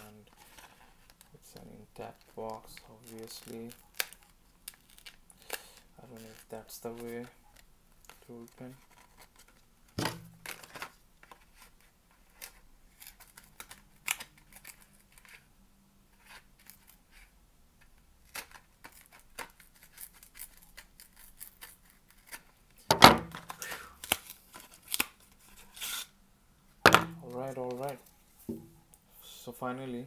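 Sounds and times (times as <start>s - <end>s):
paper tearing and rustling: 2.6s - 7.2s, 18.2s - 22.5s.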